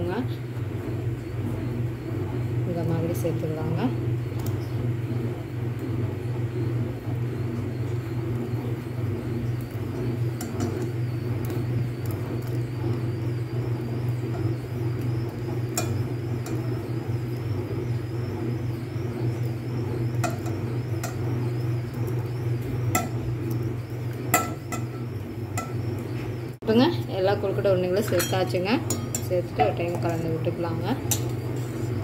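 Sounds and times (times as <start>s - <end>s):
gas stove burner rumble: 0.0s - 32.0s
light clinks on a pot: 28.0s - 29.3s.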